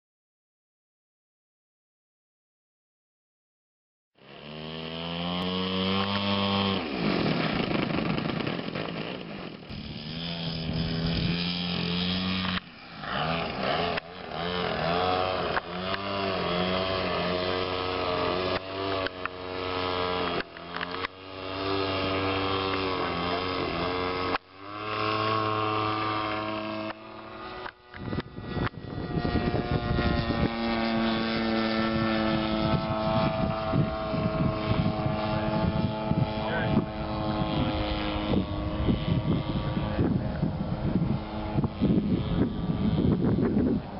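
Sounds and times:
model plane engine revving: 0:04.2 - 0:43.9.

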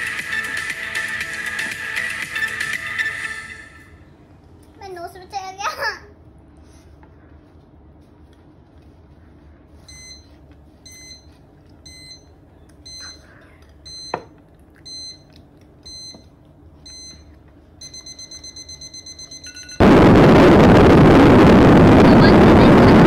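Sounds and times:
timer alarm beeping: 0:09.9 - 0:10.3, 0:10.9 - 0:11.3, 0:11.9 - 0:13.2, 0:13.9 - 0:14.2, 0:14.9 - 0:15.2, 0:15.9 - 0:16.2, 0:16.8 - 0:19.8.

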